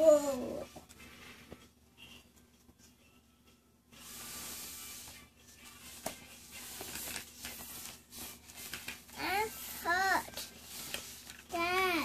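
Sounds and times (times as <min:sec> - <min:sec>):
toddler rustling on play mat: 0:04.0 - 0:12.0.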